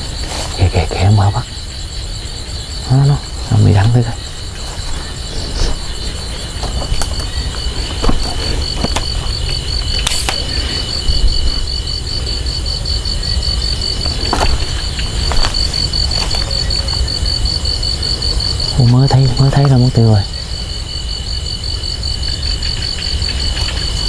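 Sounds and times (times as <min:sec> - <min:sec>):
crickets chirping: 0:00.0 - 0:24.0
clicks and rustles: 0:06.5 - 0:11.2, 0:14.0 - 0:17.1.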